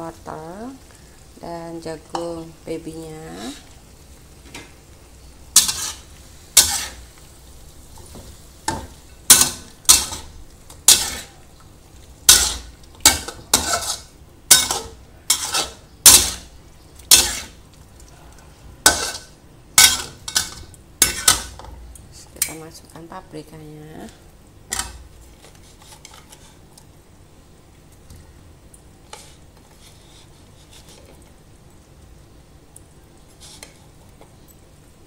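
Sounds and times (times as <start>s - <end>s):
metal spatula scraping a wok: 5.5s - 7.1s, 8.7s - 11.4s, 12.2s - 17.6s, 18.8s - 21.7s, 24.7s - 26.6s, 29.1s - 31.2s, 33.4s - 34.0s.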